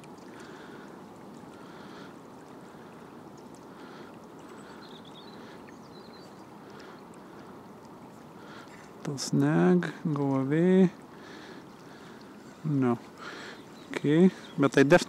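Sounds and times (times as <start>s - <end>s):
shallow river water rippling: 0.0s - 15.0s.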